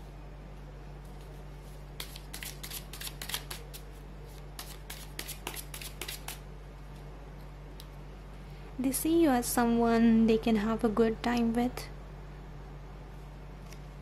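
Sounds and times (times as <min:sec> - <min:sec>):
cards being shuffled: 0:01.1 - 0:06.4.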